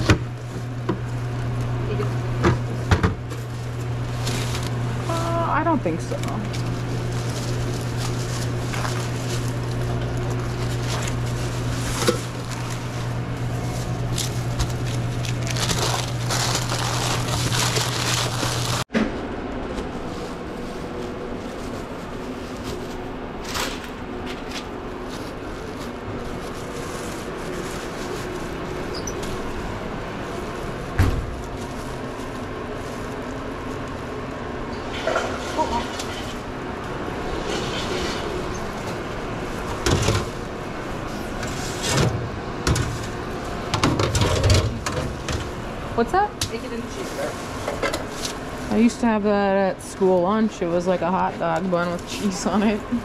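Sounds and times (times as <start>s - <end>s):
steady low hum: 0.0s - 53.0s
wrapping crinkling and rustling: 2.7s - 18.9s, 19.8s - 34.3s, 46.5s - 53.0s.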